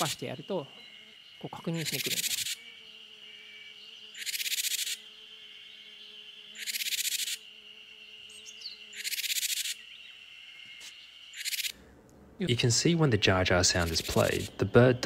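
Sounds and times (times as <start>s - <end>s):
bird buzzing alarm call: 0.0s - 11.9s, 13.3s - 15.0s.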